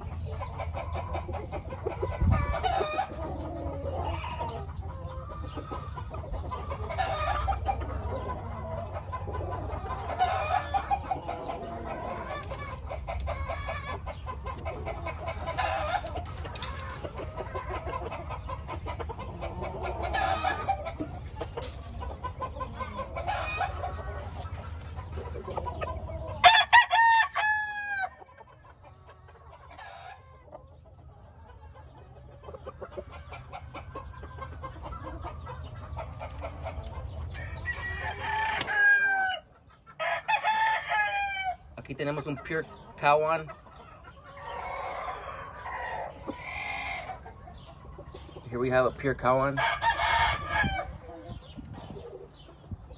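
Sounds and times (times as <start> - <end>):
hens clucking: 0.0 - 52.9
rooster crowing loudly: 26.4 - 28.1, 37.4 - 41.6, 49.6 - 50.9.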